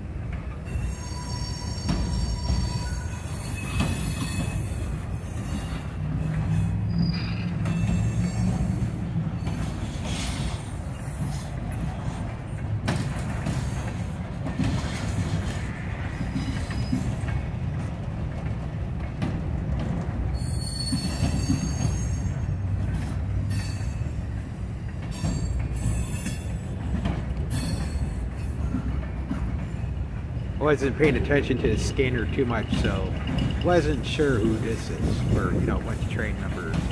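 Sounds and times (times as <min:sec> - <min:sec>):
train wheels rumbling on rail: 0:00.0 - 0:36.9
high-pitched wheel squeal: 0:00.7 - 0:08.5, 0:20.4 - 0:22.5.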